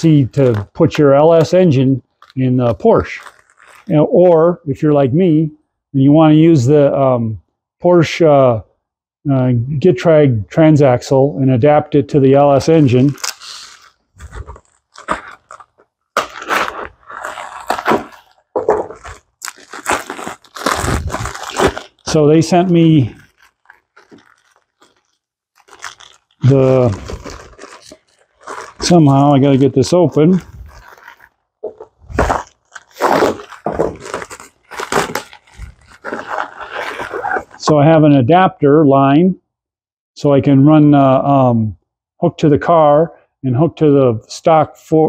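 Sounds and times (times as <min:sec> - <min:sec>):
packaging bag crinkling and tearing: 0:00.0 - 0:04.0, 0:12.5 - 0:37.6
envelope being slit and torn: 0:12.9 - 0:31.3, 0:31.9 - 0:37.6.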